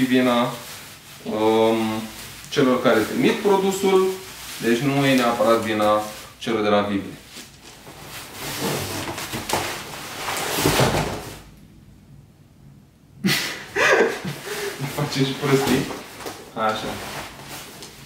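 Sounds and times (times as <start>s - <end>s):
bubble wrap rustling: 0.0s - 11.5s, 13.8s - 18.0s
cardboard box scraping and knocking: 8.2s - 11.4s.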